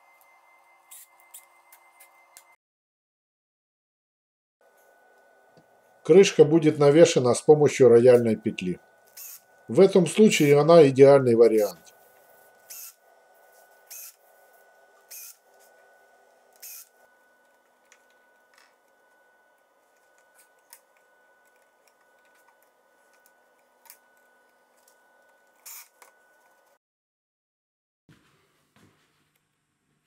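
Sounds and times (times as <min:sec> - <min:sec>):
cordless drill whirring: 0:09.1 - 0:09.6, 0:12.6 - 0:13.0, 0:13.8 - 0:14.2, 0:15.0 - 0:15.5, 0:16.5 - 0:17.0, 0:25.6 - 0:26.0.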